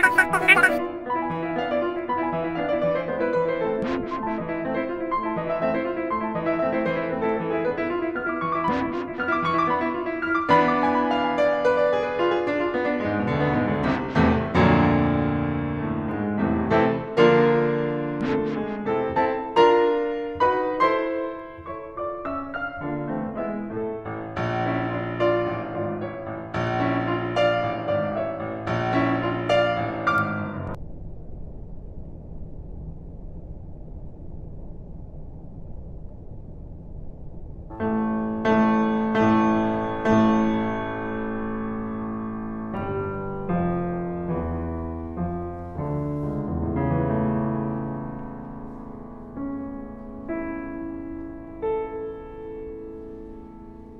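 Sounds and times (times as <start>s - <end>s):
slow piano piece: 3.8s - 30.8s, 37.7s - 53.9s
piano music: 37.8s - 53.9s.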